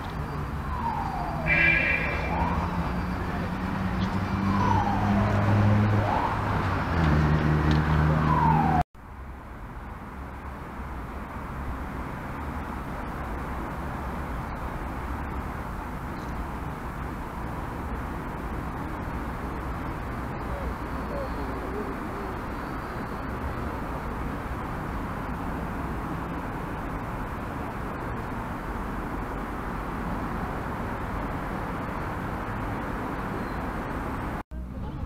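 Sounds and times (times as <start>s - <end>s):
traffic rumble: 0.0s - 35.0s
emergency siren wailing: 0.2s - 8.8s.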